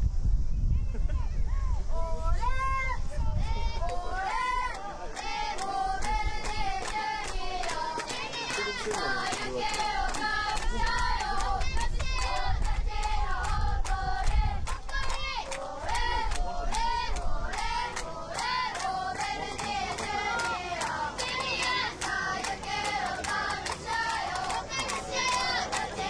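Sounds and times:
young voices chanting in unison: 0:01.8 - 0:26.0
rhythmic clapping: 0:03.8 - 0:26.0.

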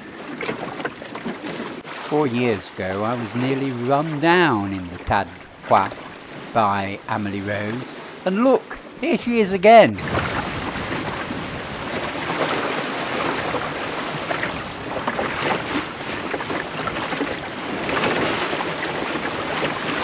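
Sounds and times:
water rushing along boat hull: 0:00.0 - 0:20.0
wind buffeting microphone: 0:09.8 - 0:20.0.

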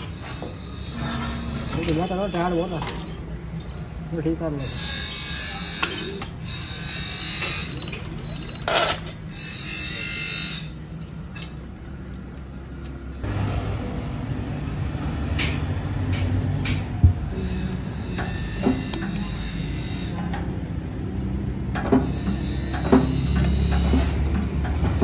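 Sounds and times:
steel sheet scraping and rattling: 0:00.0 - 0:03.4, 0:04.6 - 0:10.6.

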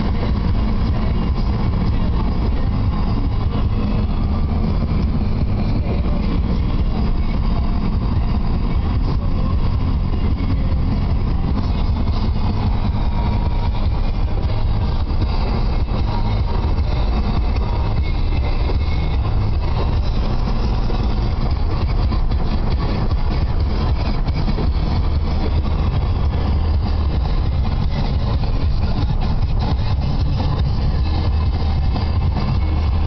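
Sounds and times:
road and engine rumble: 0:00.0 - 0:33.0.

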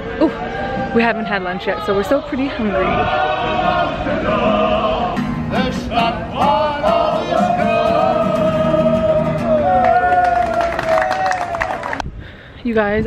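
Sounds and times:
acoustic guitar: 0:00.0 - 0:10.6
men singing together: 0:02.8 - 0:09.8.

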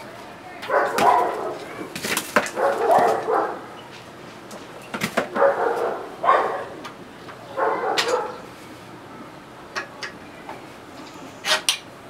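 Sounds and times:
dog barking: 0:00.7 - 0:01.6, 0:02.5 - 0:03.8, 0:05.3 - 0:06.8, 0:07.5 - 0:08.4.

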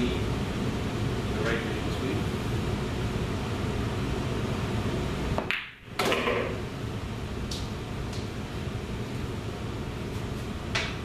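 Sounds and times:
low room hum: 0:00.0 - 0:11.0
pool balls clicking: 0:05.3 - 0:06.6
cue striking ball: 0:05.4 - 0:06.6.

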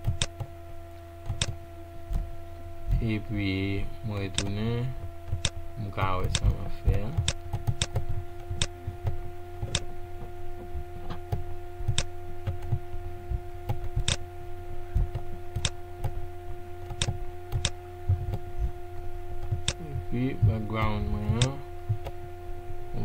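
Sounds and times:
computer mouse clicking: 0:00.0 - 0:00.5, 0:01.3 - 0:01.6, 0:06.2 - 0:09.9, 0:11.3 - 0:12.8, 0:13.7 - 0:14.2, 0:15.0 - 0:16.2, 0:16.9 - 0:18.4, 0:19.4 - 0:19.8, 0:20.8 - 0:22.2
electrical hum: 0:00.0 - 0:23.0.

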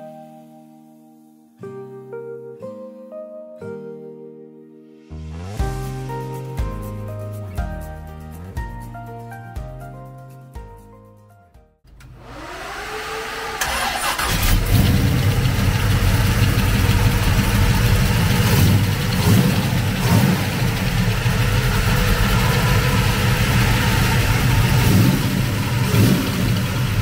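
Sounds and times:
car engine idling: 0:11.9 - 0:27.0
engine throttle blips: 0:11.9 - 0:27.0
starter motor whirring: 0:11.9 - 0:27.0.

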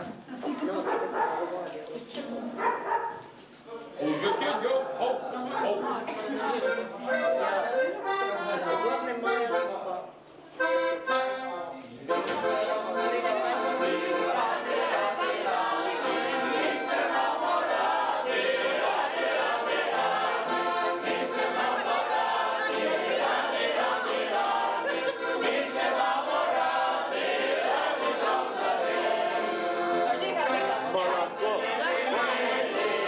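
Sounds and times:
people singing in chorus: 0:12.2 - 0:33.0.

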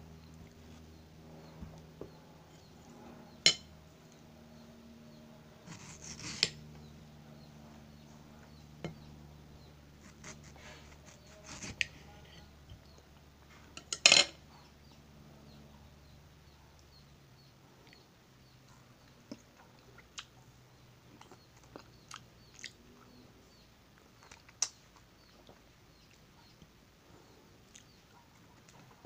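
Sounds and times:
knife scraping through fruit: 0:05.6 - 0:06.6, 0:10.0 - 0:12.5.

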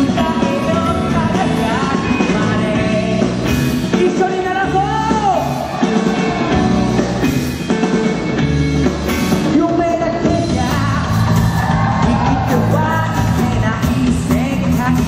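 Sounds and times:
man singing into microphone: 0:00.0 - 0:05.5, 0:11.9 - 0:15.0
drums: 0:00.0 - 0:15.0
electric bass: 0:00.0 - 0:15.0
electric guitar: 0:00.0 - 0:15.0.

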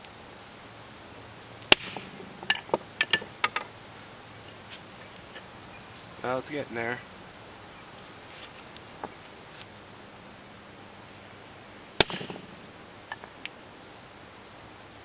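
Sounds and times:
hammer striking hatchet head: 0:01.7 - 0:02.2, 0:12.0 - 0:12.5
light knocks of stone and tools: 0:01.7 - 0:03.7, 0:12.0 - 0:13.6.

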